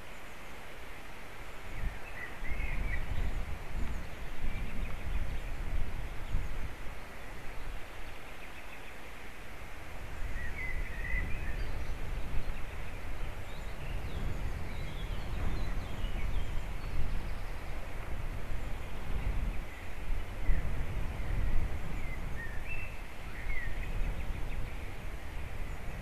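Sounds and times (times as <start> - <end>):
wind rumbling on microphone: 0.0 - 26.0
faint bird chirps: 10.2 - 17.8, 18.6 - 25.0.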